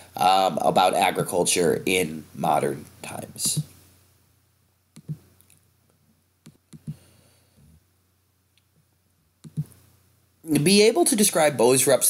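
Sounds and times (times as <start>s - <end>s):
computer mouse clicks: 5.0s - 5.6s, 6.4s - 7.0s, 9.4s - 9.8s.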